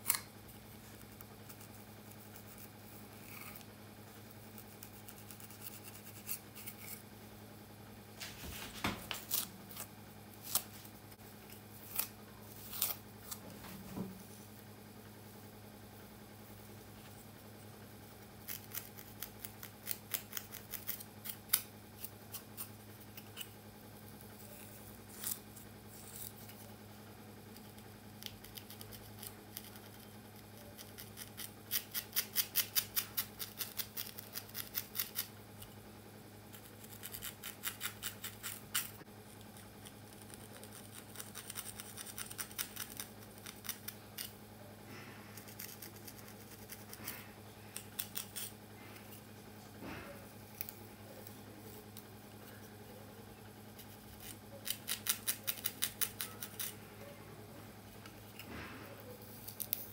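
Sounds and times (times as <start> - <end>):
faint steady hum: 0.0 - 59.9
comb scratching through braided hair: 4.2 - 7.0, 45.3 - 49.2.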